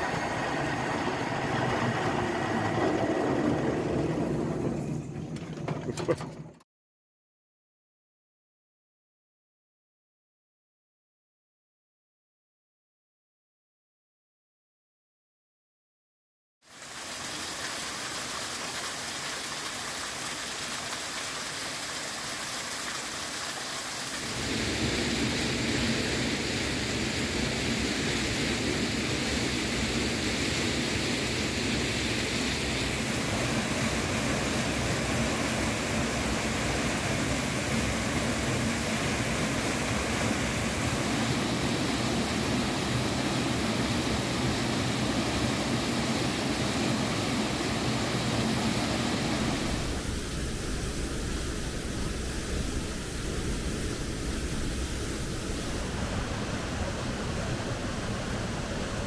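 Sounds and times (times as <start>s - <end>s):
waterfall rushing and splashing: 16.7s - 59.0s.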